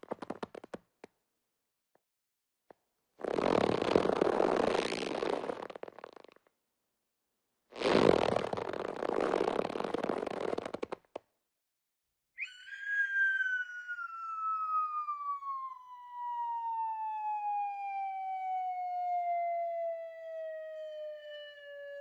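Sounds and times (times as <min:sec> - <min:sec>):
cartoon falling whistle: 0:12.4 - 0:16.2.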